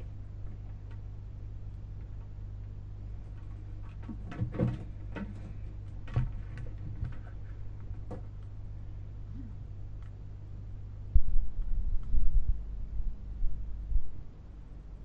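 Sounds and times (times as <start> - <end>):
faint low drone: 8.4 - 15.0.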